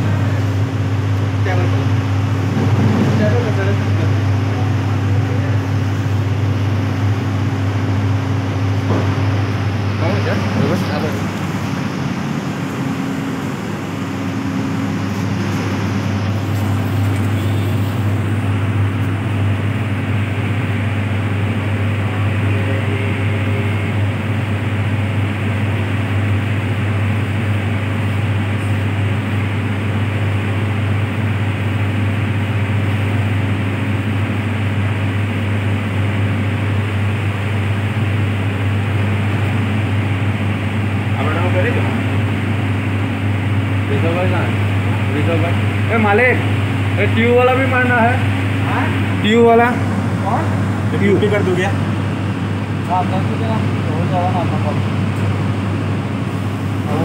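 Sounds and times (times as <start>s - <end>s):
machine droning: 0.0s - 57.0s.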